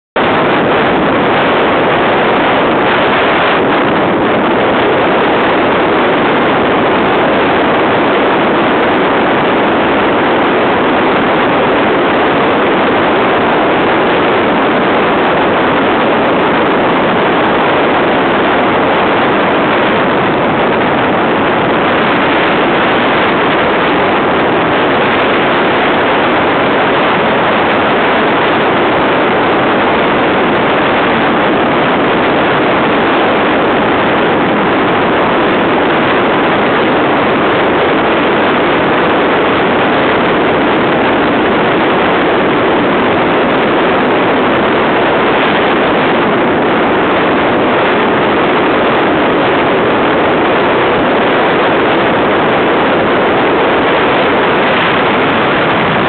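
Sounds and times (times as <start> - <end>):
wind rushing across microphone: 0.0 - 56.0
water noise: 0.2 - 56.0.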